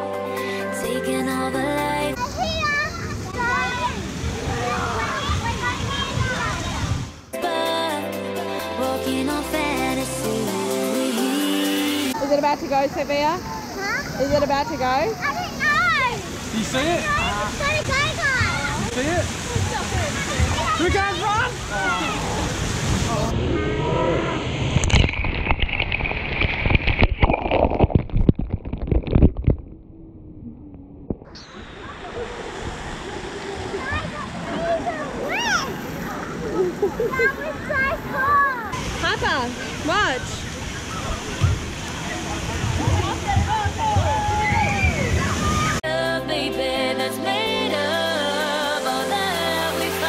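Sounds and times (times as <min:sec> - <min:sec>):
crowd and water: 0:00.0 - 0:30.2, 0:30.9 - 0:50.0
melody over bass notes: 0:07.4 - 0:12.1
water crashing onto camera: 0:21.5 - 0:35.7.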